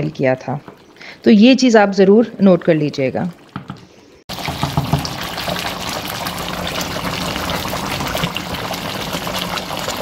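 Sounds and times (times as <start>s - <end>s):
thick sauce bubbling in a pot: 4.3s - 10.0s.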